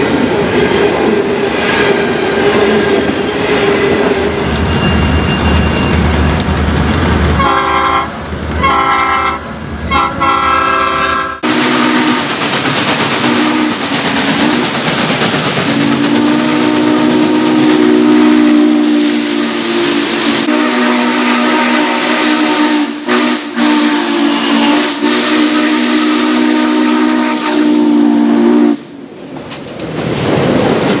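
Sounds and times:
steam locomotive whistle: 0:07.4 - 0:12.4, 0:13.2 - 0:14.6, 0:15.7 - 0:29.0
loud steam hiss: 0:11.4 - 0:29.1.

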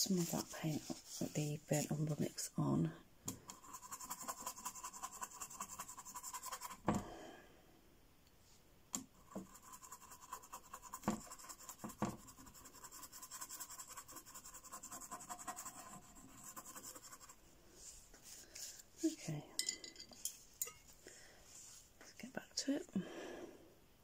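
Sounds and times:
paintbrush scrubbing on board: 0:00.0 - 0:01.5, 0:03.5 - 0:06.8, 0:09.2 - 0:19.1.

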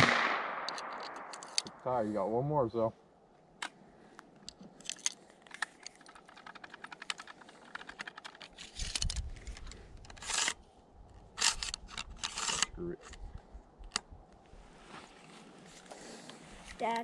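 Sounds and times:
metallic clicks of rifle loading: 0:00.6 - 0:01.8, 0:03.6 - 0:14.1.

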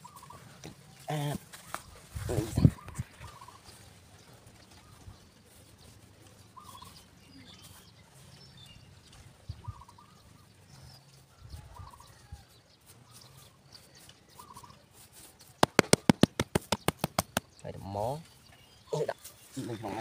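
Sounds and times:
hand rubbing dry soil: 0:12.2 - 0:17.5
hand slapping soil: 0:15.0 - 0:17.6.

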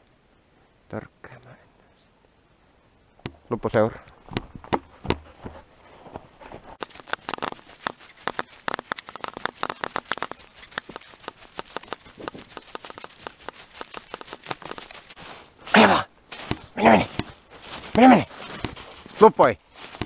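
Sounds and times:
footsteps crunching on frosty ground: 0:04.1 - 0:20.0.

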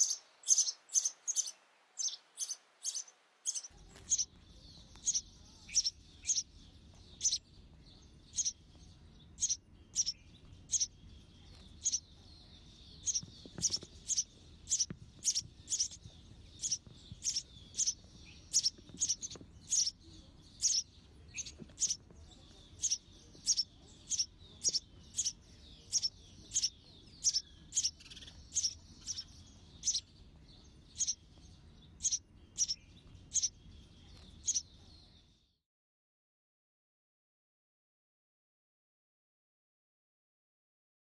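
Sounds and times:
faint high hiss: 0:00.0 - 0:04.3
sparrows chirping: 0:00.0 - 0:35.6.

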